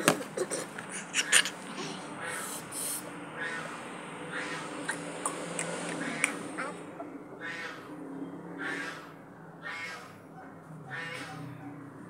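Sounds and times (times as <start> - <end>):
short scattered calls: 0.0 - 7.9.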